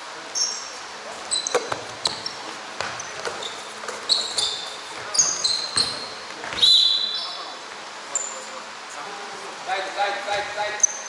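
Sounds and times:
sneaker squeaks: 0.3 - 8.5, 10.3 - 11.0
basketball bouncing: 1.4 - 6.6.

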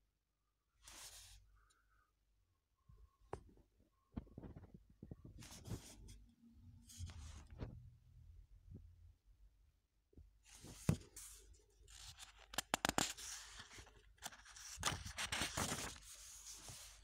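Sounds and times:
paper pages rustling: 4.4 - 6.1, 10.5 - 17.0.

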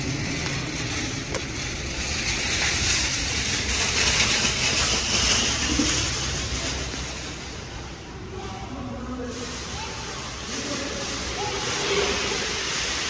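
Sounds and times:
rushing air hiss: 9.2 - 13.0.

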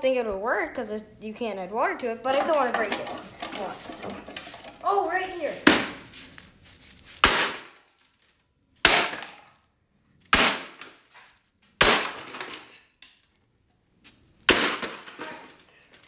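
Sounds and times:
sledgehammer cracking plastic: 7.2 - 8.0, 8.8 - 9.5, 10.3 - 11.1, 11.8 - 12.8, 14.4 - 15.6.

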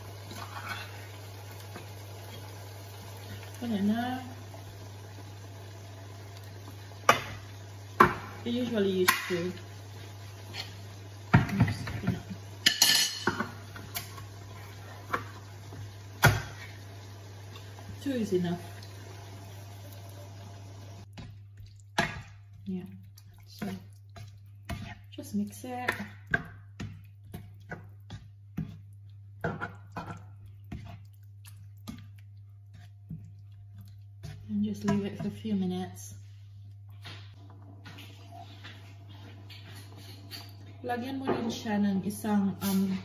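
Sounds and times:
spoon scraping frying pan: 0.2 - 2.5, 9.0 - 16.8, 37.8 - 40.8.

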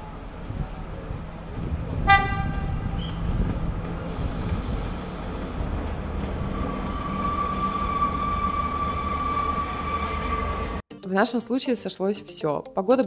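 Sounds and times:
train rumbling: 0.0 - 10.8
train wheels squealing: 6.2 - 10.8.

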